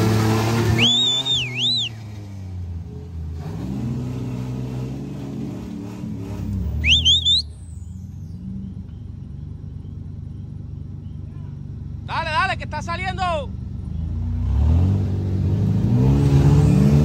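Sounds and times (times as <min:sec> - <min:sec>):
truck engine revving: 0:00.0 - 0:09.2, 0:13.8 - 0:17.0.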